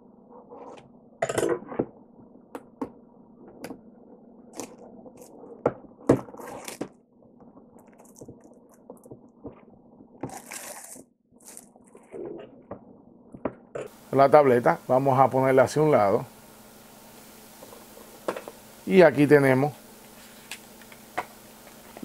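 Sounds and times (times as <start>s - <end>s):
plastic film crinkling: 10.2s - 12.0s.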